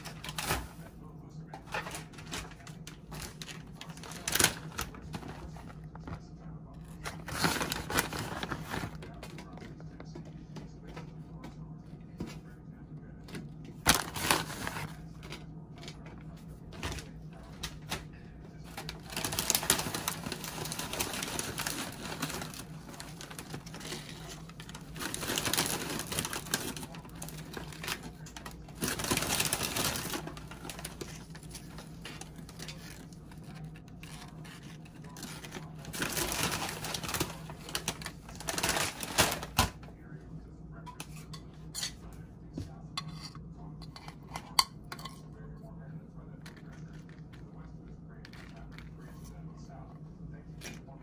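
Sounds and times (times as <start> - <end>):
tortilla chips crackling: 18.6 - 33.2.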